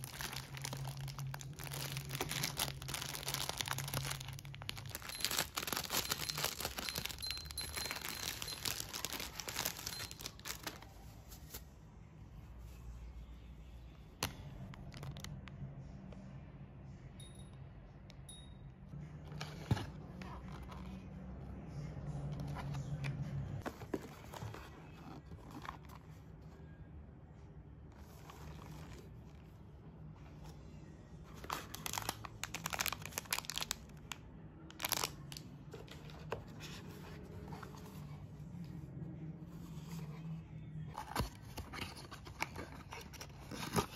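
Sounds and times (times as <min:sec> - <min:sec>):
plastic packaging crinkling: 0:00.0 - 0:11.6, 0:31.4 - 0:36.4.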